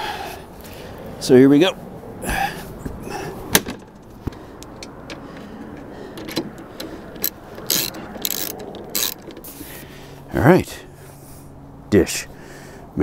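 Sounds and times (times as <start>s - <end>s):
ratchet wrench tightening bolts: 6.8s - 9.6s.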